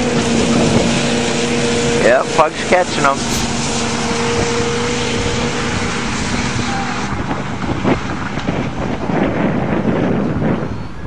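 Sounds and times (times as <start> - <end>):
distant engines running hard: 0.0 - 9.2
wind on microphone: 3.0 - 11.0
brief thump: 3.3 - 3.6.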